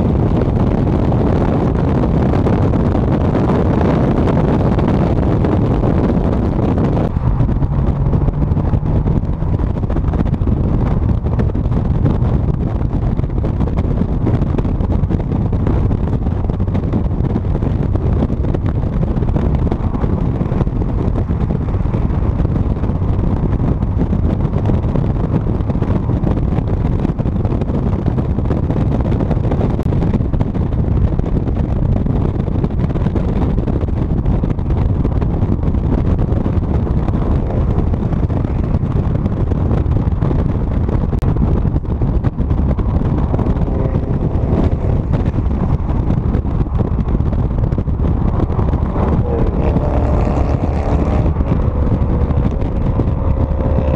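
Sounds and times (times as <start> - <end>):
road and driving noise: 0.0 - 53.9
wind buffeting microphone: 0.0 - 53.9.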